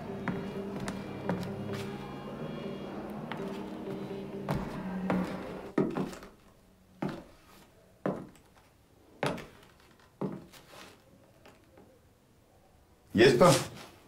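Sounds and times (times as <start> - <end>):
held musical note: 0.0 - 5.7
footsteps on wooden floor: 0.0 - 6.4, 7.0 - 8.4, 9.2 - 10.7.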